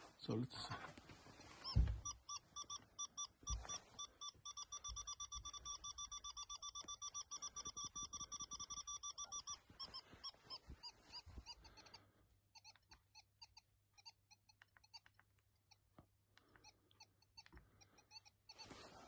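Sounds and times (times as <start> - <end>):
metal detector beeps: 1.4 - 12.0.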